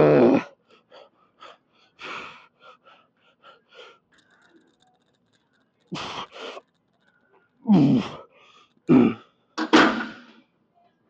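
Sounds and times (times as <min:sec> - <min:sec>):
man breathing hard: 0:00.6 - 0:04.3.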